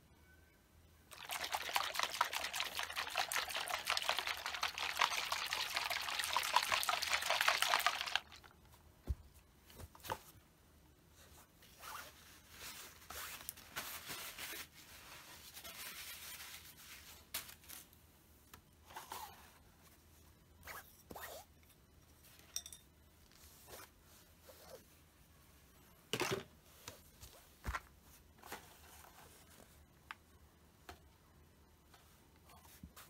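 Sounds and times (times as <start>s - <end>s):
liquid sloshing in shaken bottle: 1.1s - 8.5s.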